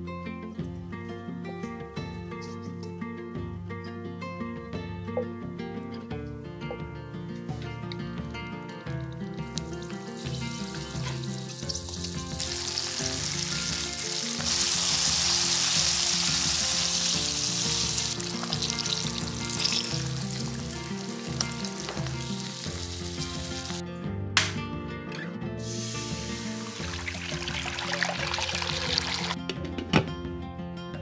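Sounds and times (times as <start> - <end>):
background music with steady beat: 0.0 - 31.0
fish frying in oil: 10.2 - 23.8, 25.8 - 29.4.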